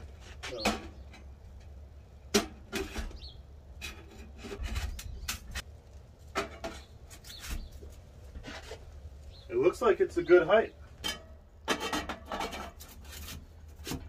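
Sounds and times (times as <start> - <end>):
metal stovepipe knocking and scraping: 0.4 - 5.6, 6.3 - 7.7, 10.9 - 14.0.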